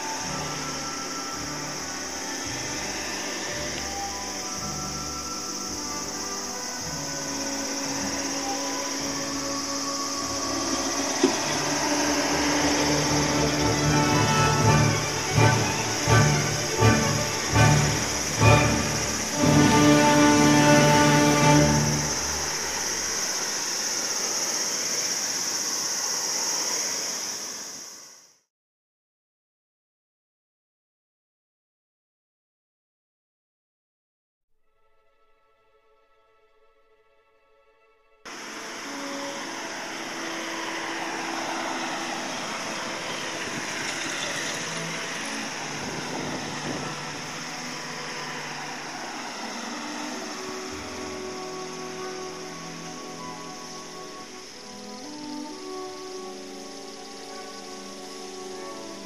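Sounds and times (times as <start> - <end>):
background music: 0.0 - 23.0, 34.6 - 59.0
jet airliner flying overhead: 0.0 - 27.9, 38.3 - 55.0
high-pitched jet hiss: 0.0 - 28.3, 38.3 - 59.0.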